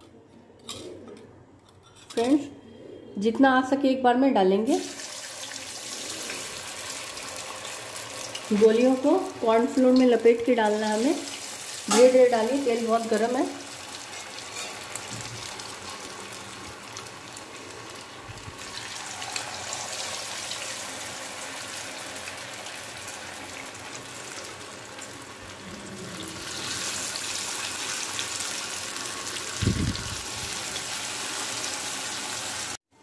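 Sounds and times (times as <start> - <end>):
food deep-frying in hot oil: 4.7 - 32.8.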